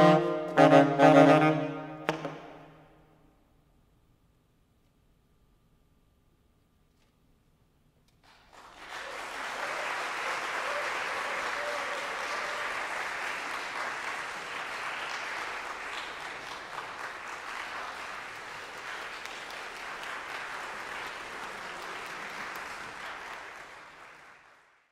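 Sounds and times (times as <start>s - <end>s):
audience applauding: 8.2s - 24.9s.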